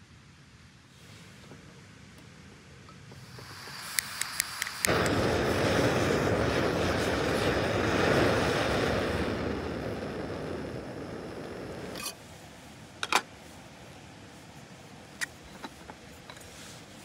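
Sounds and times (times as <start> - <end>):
igniter clicks: 3.1 - 5.3
gas burner rushing: 3.1 - 12.2
gas hissing: 3.1 - 12.5.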